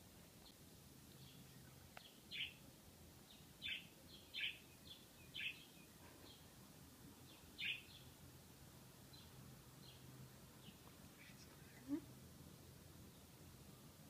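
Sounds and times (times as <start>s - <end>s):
small bird chirping: 0.4s - 6.6s, 7.2s - 8.2s, 9.0s - 12.1s.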